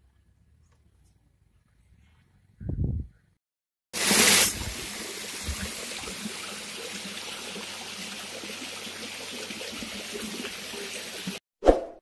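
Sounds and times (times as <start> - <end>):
water trickling over weir: 4.0 - 11.4.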